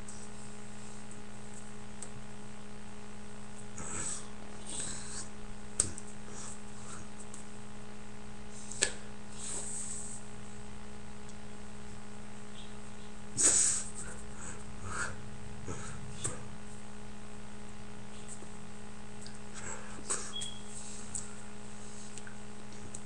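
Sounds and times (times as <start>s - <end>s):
low hum: 10.3s - 23.0s
breathy puff: 13.4s - 16.5s.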